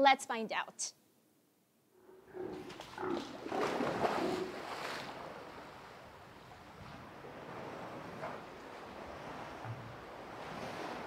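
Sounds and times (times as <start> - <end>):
sea lion splashing into pool: 2.5 - 5.5
water washing: 2.6 - 5.8.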